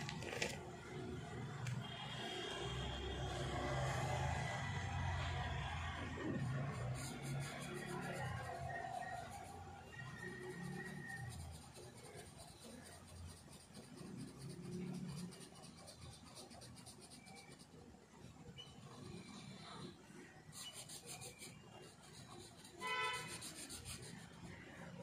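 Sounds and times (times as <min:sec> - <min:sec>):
marker scratching on paper: 0:06.3 - 0:09.6, 0:10.2 - 0:17.8, 0:18.6 - 0:25.0.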